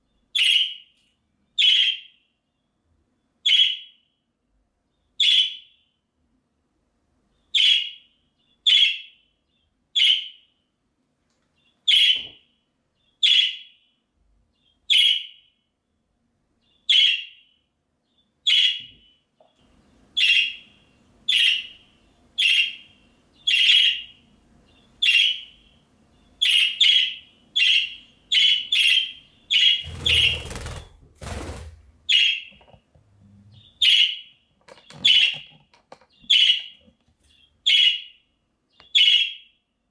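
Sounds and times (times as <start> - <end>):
budgerigar calling: 20.2 - 20.7, 21.3 - 25.6, 26.4 - 30.6, 33.6 - 34.2, 37.6 - 38.1.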